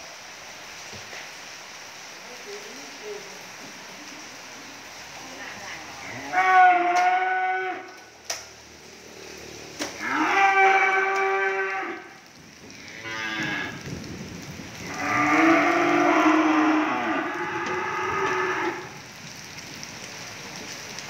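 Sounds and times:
cattle mooing: 6.0s - 8.0s, 9.9s - 12.1s, 12.9s - 13.8s, 14.9s - 18.9s.

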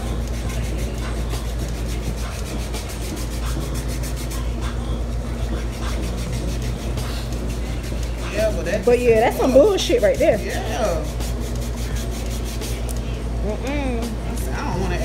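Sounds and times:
foot file rasping on skin: 0.2s - 4.5s, 5.6s - 12.9s.

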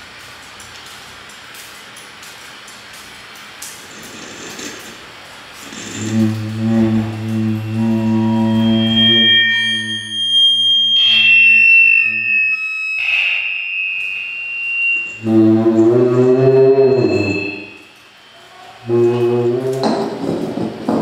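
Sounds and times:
low electronic hum: 5.2s - 20.3s
high whistling feedback tones: 5.6s - 20.3s.

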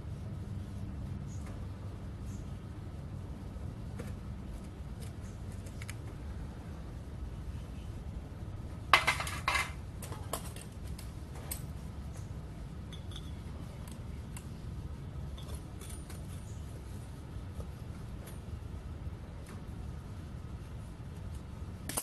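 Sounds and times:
low steady rumble: 0.0s - 22.0s
metal tools clinking and scraping: 8.9s - 10.7s.

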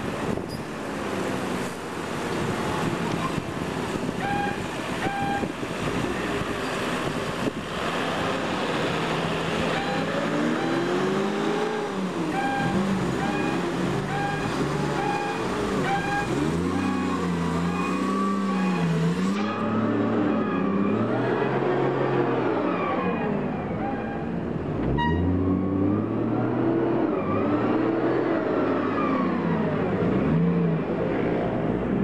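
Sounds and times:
forklift engine revving: 3.8s - 23.0s
reversing beeper: 4.2s - 5.5s, 9.7s - 10.9s, 12.4s - 21.1s.

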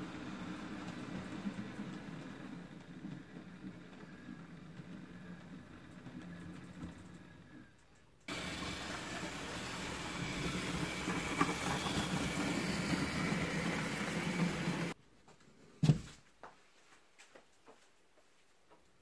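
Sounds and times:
model train wheels rolling on track: 0.0s - 15.0s.

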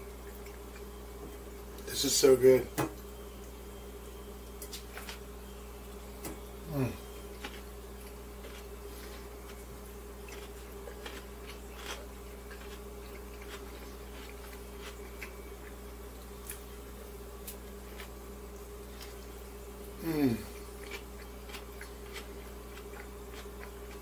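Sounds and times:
low electrical hum: 0.0s - 24.0s
person eating a wrap: 7.0s - 15.8s, 16.4s - 24.0s.

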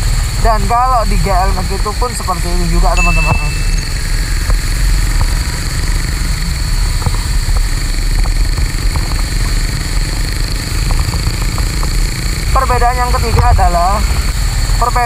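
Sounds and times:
motorcycle engine and road rumble: 0.0s - 15.0s.

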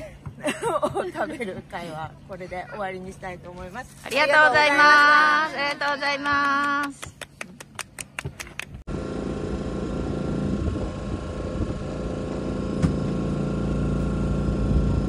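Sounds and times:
hand clapping: 5.0s - 8.8s
engine hum: 8.6s - 15.0s.

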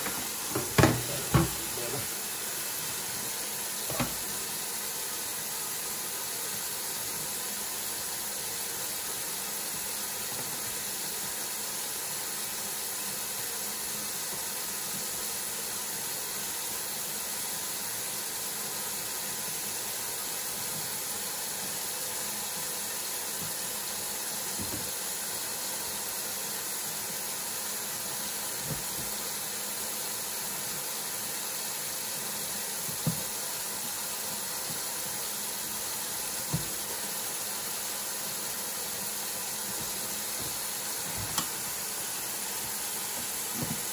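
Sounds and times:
faucet running into steel sink: 0.0s - 12.0s.

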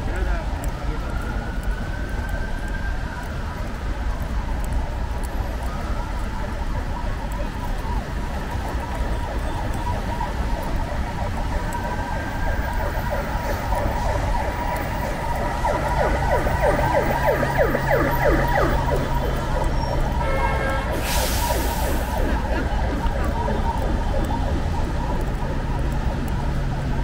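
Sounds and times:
emergency vehicle siren: 0.0s - 27.0s
traffic on wet road: 0.0s - 27.0s
rain hissing: 12.8s - 26.8s.

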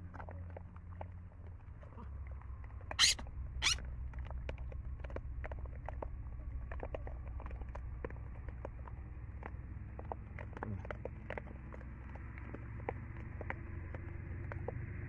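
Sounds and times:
baboon harsh calls: 3.0s - 3.8s.

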